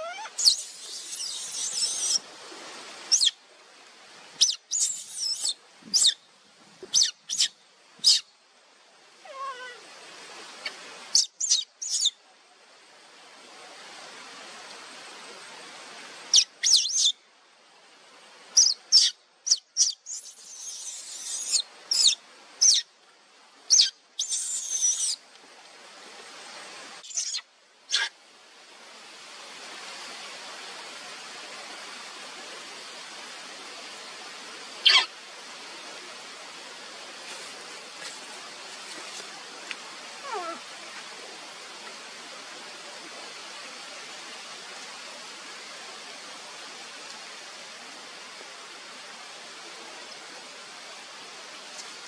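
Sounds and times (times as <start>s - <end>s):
baby macaque shrill cries: 0.0s - 2.2s, 4.4s - 6.2s, 9.3s - 9.8s, 11.2s - 12.1s, 19.8s - 22.8s, 23.7s - 25.2s, 27.0s - 28.1s, 34.8s - 35.1s
baby macaque squeaks: 0.0s - 2.2s, 4.4s - 6.2s, 6.9s - 8.2s, 23.7s - 25.2s, 27.0s - 28.1s, 34.8s - 35.1s.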